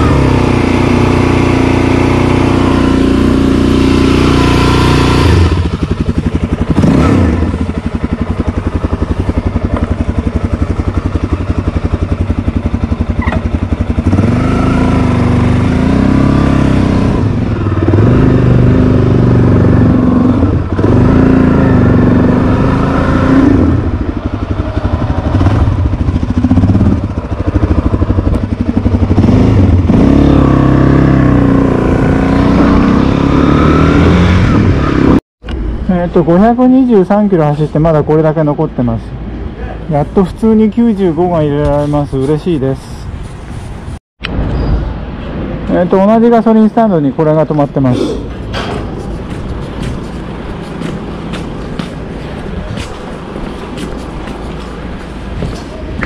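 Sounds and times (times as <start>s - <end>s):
motorcycle engine accelerating: 0.0s - 35.6s.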